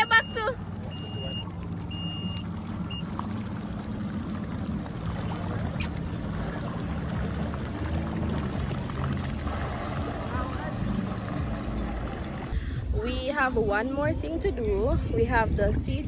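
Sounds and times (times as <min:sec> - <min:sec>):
short high beep: 0:00.0 - 0:03.1
water washing: 0:00.0 - 0:12.6
jet ski engine humming: 0:00.0 - 0:13.0.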